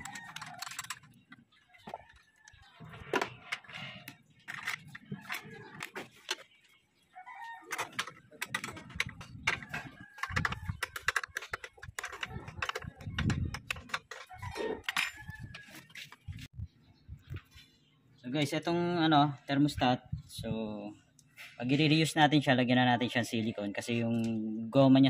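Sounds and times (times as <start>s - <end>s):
metal tools clinking: 0.0s - 1.2s, 4.4s - 6.4s, 7.7s - 15.8s
wrench loosening bolts: 7.8s - 15.6s.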